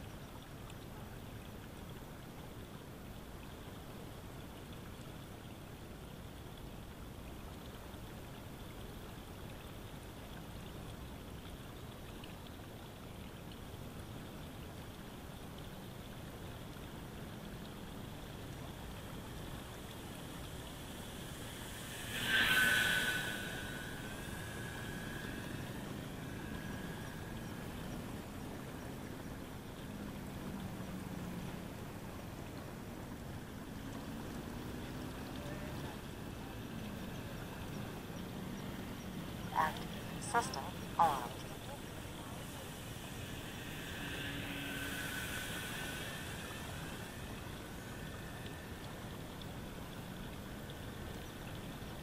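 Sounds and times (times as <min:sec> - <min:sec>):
steady background noise: 0:00.0 - 0:52.0
steady rushing background noise: 0:15.9 - 0:52.0
rc glider motor whining: 0:17.3 - 0:32.3, 0:34.8 - 0:52.0.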